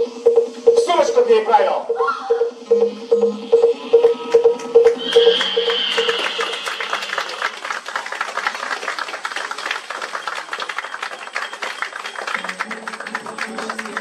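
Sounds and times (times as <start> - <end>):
audience applauding: 4.9 - 14.0.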